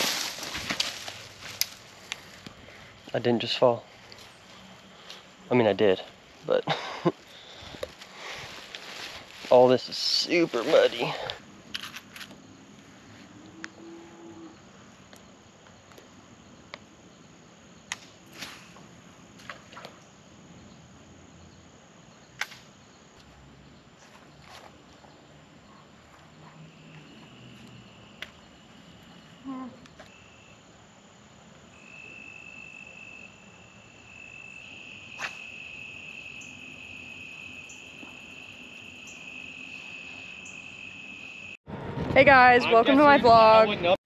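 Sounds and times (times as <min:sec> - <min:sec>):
insects buzzing: 0:00.0 - 0:41.6.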